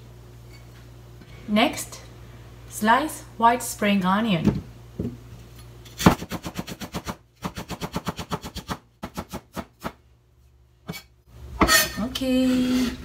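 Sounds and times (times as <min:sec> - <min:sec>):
knife chopping onion on board: 0:06.0 - 0:10.0.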